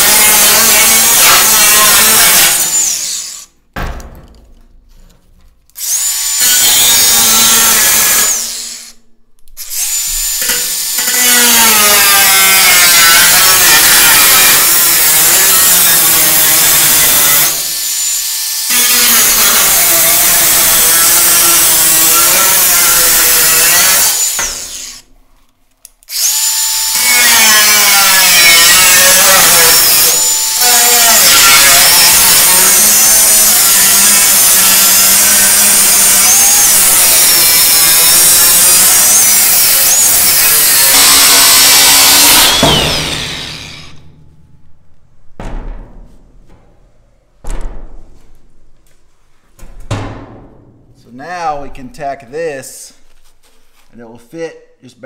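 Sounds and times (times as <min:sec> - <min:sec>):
angle grinder cutting steel: 0:00.0 - 0:03.6, 0:05.8 - 0:09.0, 0:09.6 - 0:25.1, 0:26.1 - 0:44.2.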